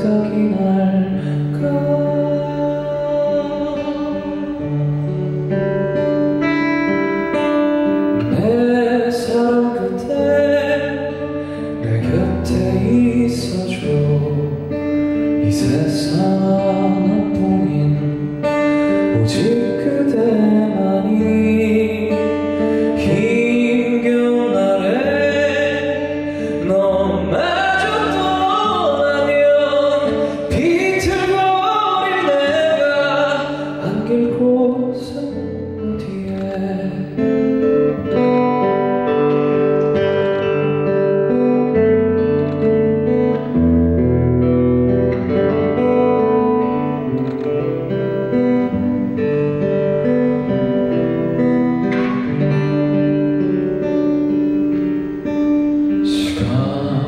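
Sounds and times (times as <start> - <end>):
man singing: 0.0 - 6.1, 7.0 - 39.1, 55.9 - 57.0
acoustic guitar: 0.0 - 57.0.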